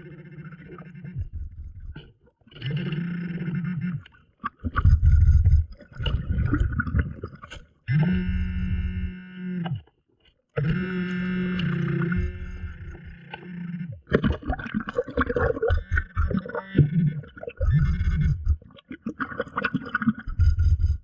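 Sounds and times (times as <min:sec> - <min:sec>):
bubbling exhale rumble: 0:04.6 - 0:07.5, 0:14.0 - 0:21.0.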